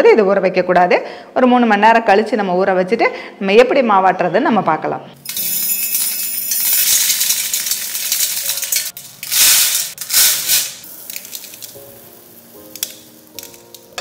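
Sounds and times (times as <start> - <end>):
rice grains pouring into steel: 5.4 - 13.8.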